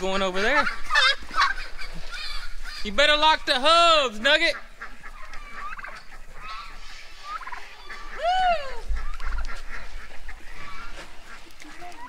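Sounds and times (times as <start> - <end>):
poultry calling: 0.0 - 12.0
turkey gobbling: 0.0 - 12.0
person shouting woo: 8.2 - 8.9.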